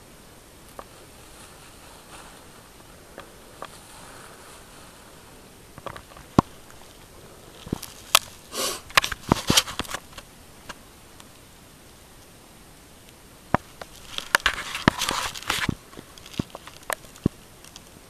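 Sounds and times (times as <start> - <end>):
breathy hiss: 0.0 - 18.0
clothing rustling: 0.7 - 10.3, 13.8 - 17.9.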